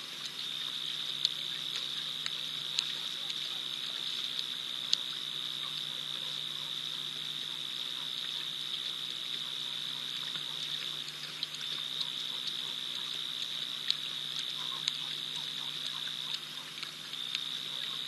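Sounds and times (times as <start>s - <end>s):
lions lapping water: 0.0s - 18.0s
high-pitched insect or frog trill: 4.8s - 18.0s.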